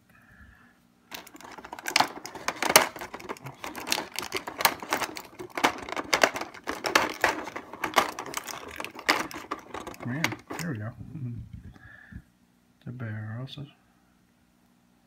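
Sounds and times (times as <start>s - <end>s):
plastic tray crackling: 1.1s - 10.8s.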